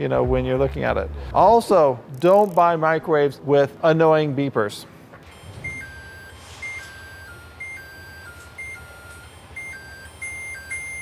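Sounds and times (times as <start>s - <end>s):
microwave chime beeps: 5.3s - 11.0s.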